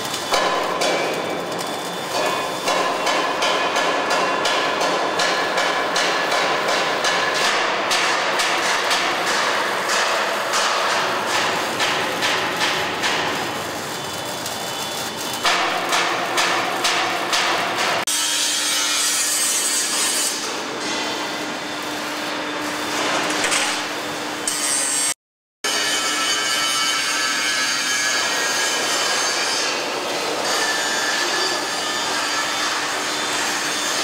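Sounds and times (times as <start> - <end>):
welding sizzling crackle: 0.0 - 18.0, 19.1 - 24.9.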